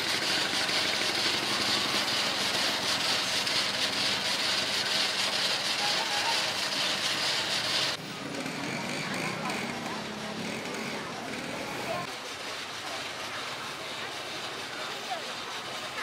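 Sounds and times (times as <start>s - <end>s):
grill hissing: 0.0s - 8.0s.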